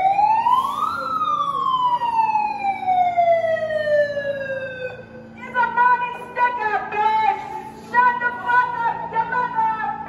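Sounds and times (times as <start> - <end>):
megaphone siren wail: 0.0 - 5.1.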